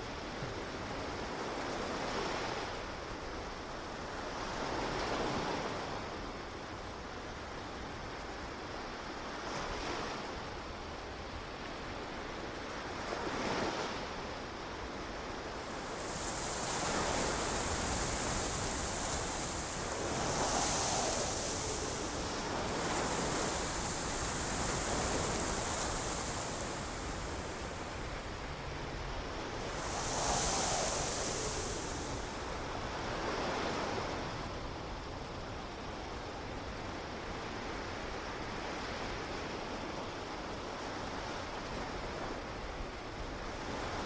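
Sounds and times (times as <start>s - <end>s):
waves breaking: 13.2s - 34.5s
steady high hiss: 14.1s - 37.3s.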